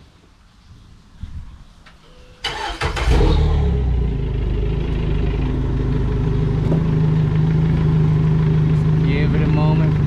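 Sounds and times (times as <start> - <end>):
outboard motor idling: 4.9 - 10.0.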